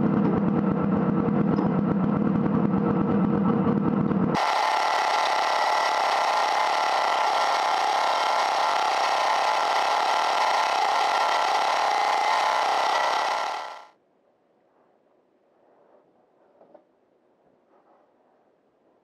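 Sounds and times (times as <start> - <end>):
snowmobile two-stroke engine running: 0.0 - 13.9.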